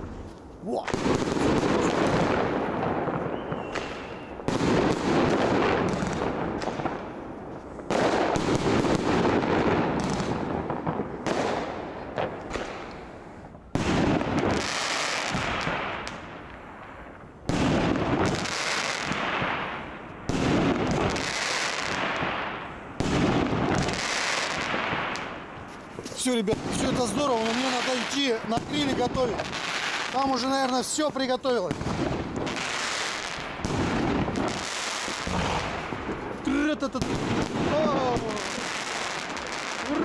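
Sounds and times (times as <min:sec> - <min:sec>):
fireworks bangs: 0:00.0 - 0:40.0
fireworks crackling: 0:00.0 - 0:40.0
fireworks rumble: 0:00.0 - 0:40.0.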